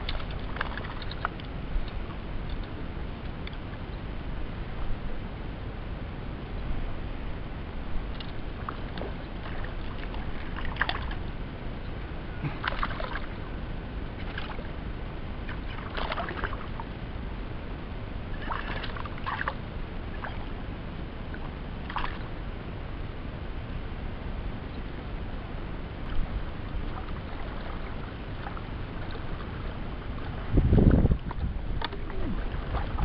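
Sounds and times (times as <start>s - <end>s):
water splashing against boat: 0.0s - 2.7s, 8.0s - 17.3s, 18.2s - 22.4s, 26.0s - 33.0s
steady low rumble: 0.0s - 33.0s.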